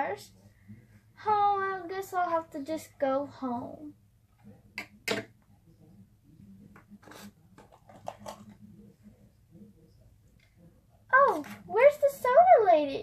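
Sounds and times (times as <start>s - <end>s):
plastic toy knocks: 4.8s - 5.3s.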